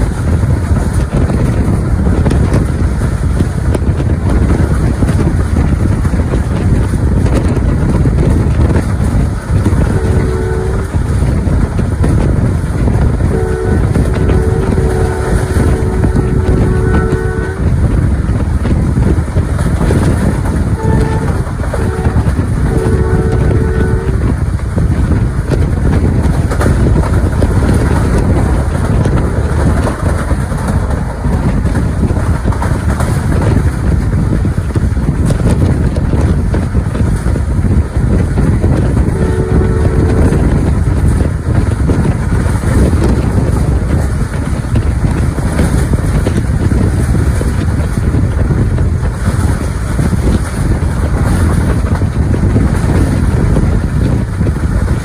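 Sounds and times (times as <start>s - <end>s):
train wheels rumbling on rail: 0.0s - 55.0s
wind on microphone: 0.0s - 55.0s
train horn blast: 9.7s - 11.4s, 13.2s - 18.0s, 20.7s - 24.4s, 38.7s - 40.9s.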